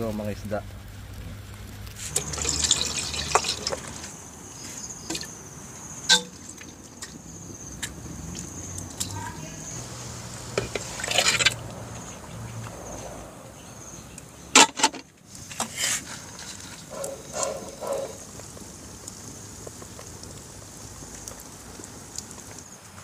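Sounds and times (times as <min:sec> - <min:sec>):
food splashing into broth: 0:01.9 - 0:04.2
sharp splashes or knocks: 0:02.0 - 0:04.2.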